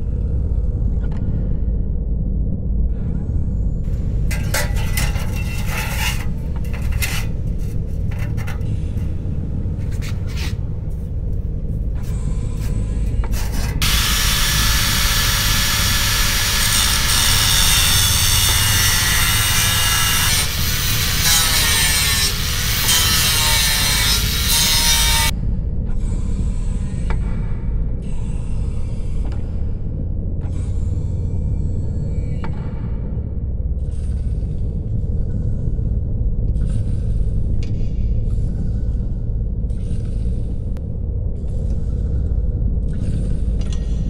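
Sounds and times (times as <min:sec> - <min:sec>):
angle grinder cutting steel: 0:03.9 - 0:10.6, 0:13.0 - 0:25.3
scrapes and knocks: 0:03.9 - 0:14.0.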